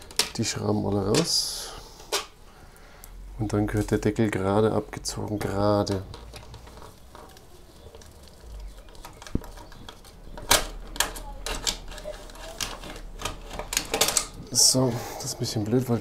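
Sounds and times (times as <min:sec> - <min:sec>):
plastic clicks and knocks: 0:00.0 - 0:00.4, 0:05.4 - 0:14.4.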